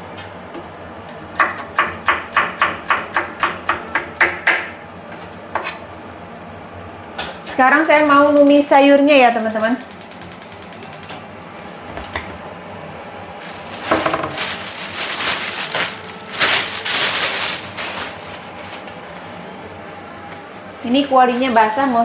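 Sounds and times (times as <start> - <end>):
paper towels rustling: 13.4 - 19.4.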